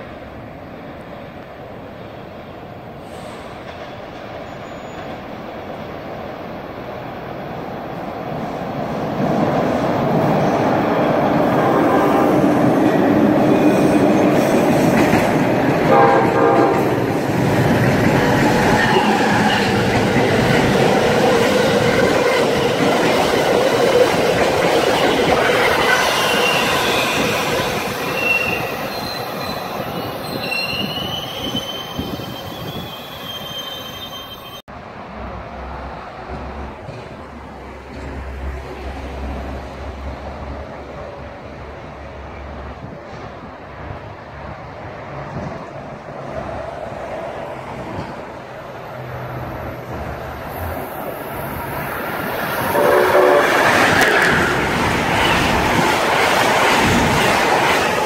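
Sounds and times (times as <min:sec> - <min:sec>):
train wheels rushing on rail: 0:02.6 - 0:34.6, 0:35.6 - 0:58.0
high-pitched wheel squeal: 0:28.0 - 0:34.6.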